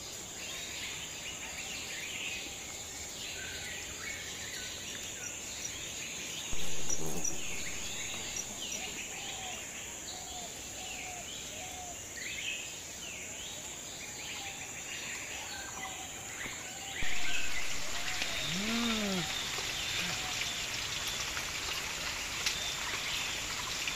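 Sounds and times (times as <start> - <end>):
small birds chirping: 0.6 - 21.3
rain patter: 4.1 - 10.0, 17.0 - 23.9
high insect drone: 4.6 - 11.5, 16.9 - 21.4
low rising and falling call: 17.0 - 19.6.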